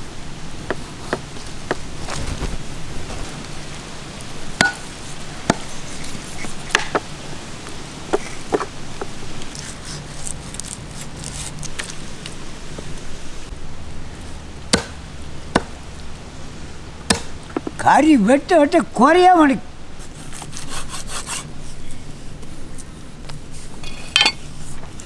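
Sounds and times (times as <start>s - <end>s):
cleaver chopping on wooden block: 4.6s - 4.8s, 14.7s - 15.0s, 17.1s - 17.8s.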